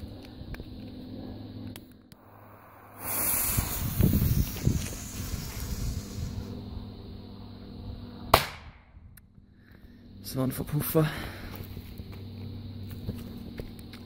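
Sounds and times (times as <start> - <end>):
lighter jet flame: 1.7 - 6.7
fuse hissing as it burns: 2.2 - 7.1
firecracker pop: 8.3 - 8.8.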